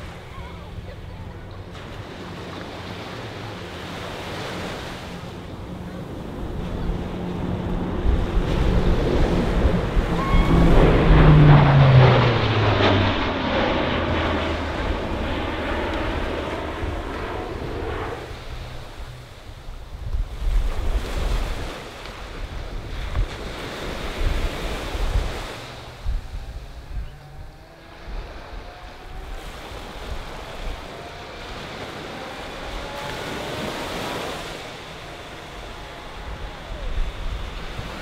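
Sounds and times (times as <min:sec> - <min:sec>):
turboprop aircraft droning: 0:00.0 - 0:21.0, 0:22.1 - 0:38.0
surf: 0:00.0 - 0:26.8
wind on microphone: 0:04.6 - 0:38.0.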